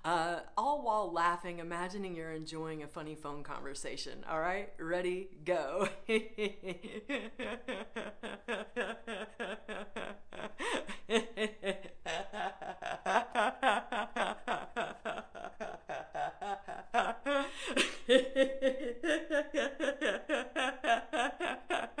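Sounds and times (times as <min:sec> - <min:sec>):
woman laughing: 0:05.5 - 0:22.0.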